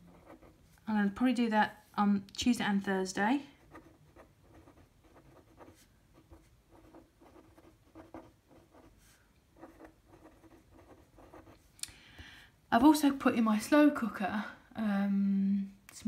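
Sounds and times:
pen writing on paper: 3.7s - 8.9s, 9.6s - 11.5s.

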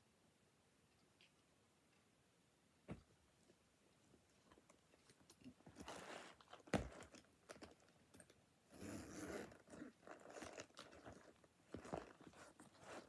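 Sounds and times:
zip pulled open: 8.7s - 13.0s
leather rustling and rubbing: 8.8s - 13.0s.

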